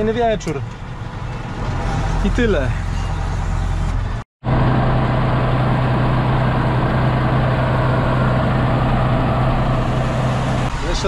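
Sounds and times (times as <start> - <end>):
diesel engine drone: 0.0 - 11.0.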